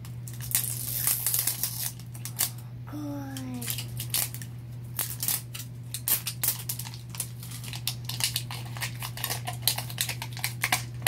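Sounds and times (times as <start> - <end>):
plastic wrapping crinkling: 3.6 - 11.0.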